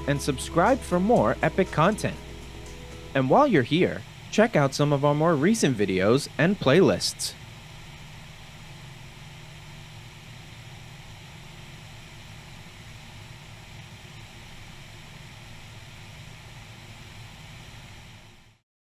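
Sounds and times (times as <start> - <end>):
light aircraft engine drone: 0.0 - 18.6.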